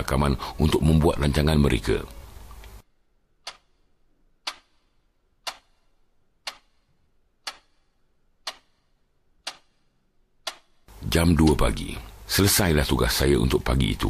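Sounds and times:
clock ticking: 3.4s - 10.9s.

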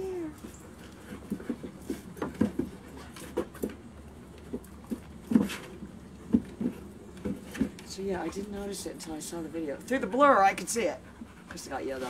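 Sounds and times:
dog panting: 9.7s - 12.0s.

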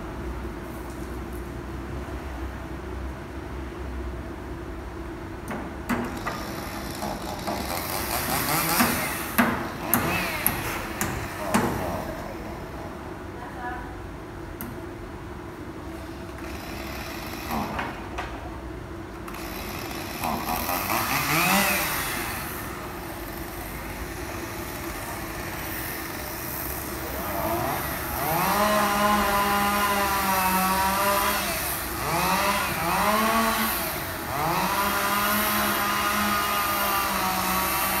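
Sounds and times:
power tool motor whining: 6.2s - 11.5s, 19.3s - 38.0s.

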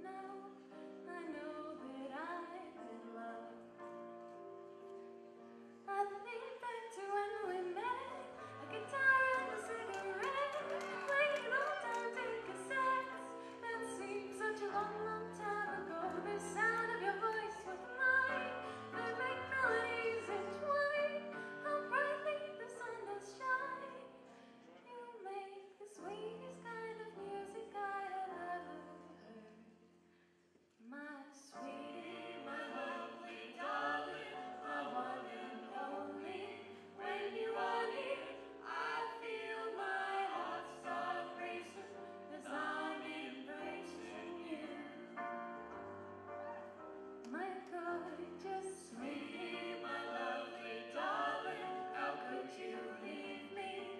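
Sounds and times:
voices singing together: 7.0s - 24.0s, 31.5s - 45.2s, 47.3s - 53.9s.

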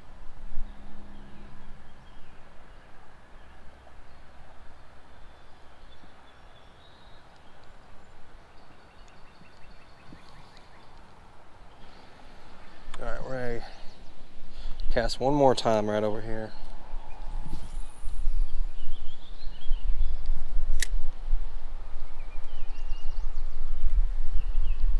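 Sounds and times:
low rumble: 0.0s - 2.4s, 16.4s - 20.3s
faint bird chirps: 0.6s - 11.0s.

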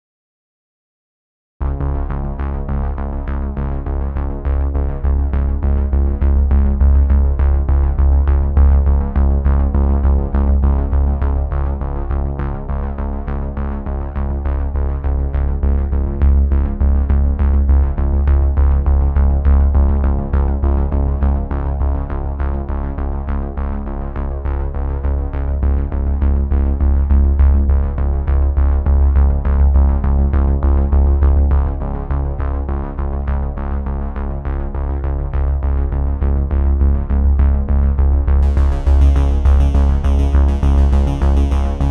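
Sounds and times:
electronic music with heavy bass: 35.7s - 41.9s.

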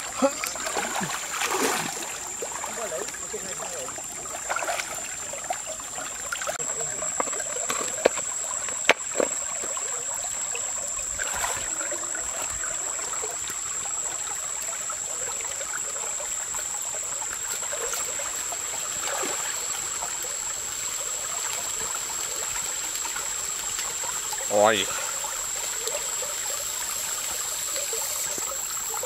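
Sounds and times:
stream running over rocks: 0.0s - 29.0s.

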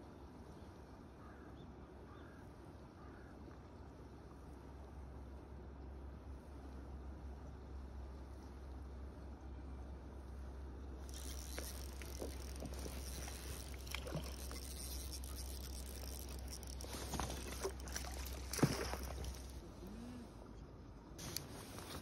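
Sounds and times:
fish splashing at surface: 11.1s - 19.5s
net swept through water: 16.8s - 19.5s.

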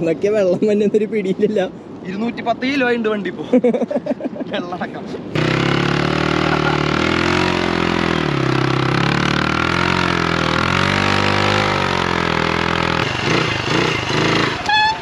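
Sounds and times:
motorcycle engine revving: 5.3s - 15.0s.

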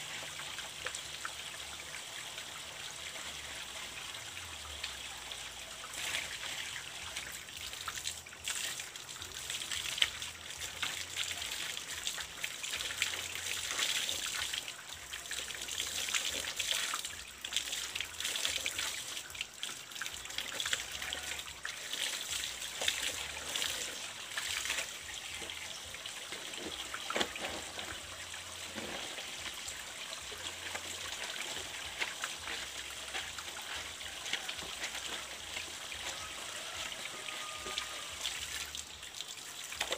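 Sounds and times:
water trickling from pipe: 0.0s - 39.9s
hands washing cloth in water: 30.3s - 38.0s.

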